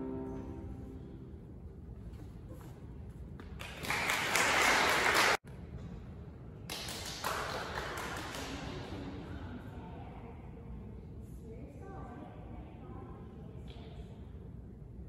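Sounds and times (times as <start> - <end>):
audience applauding: 3.6 - 5.4.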